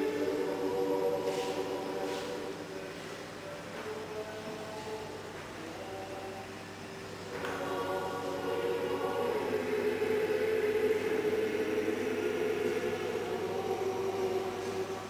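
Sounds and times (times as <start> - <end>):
church choir chanting: 0.0 - 3.0, 7.3 - 15.0.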